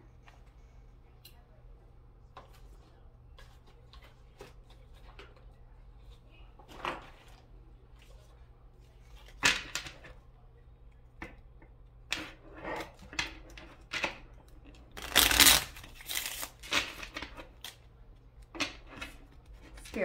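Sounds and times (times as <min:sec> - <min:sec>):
hands shuffling cards: 0:15.0 - 0:16.7.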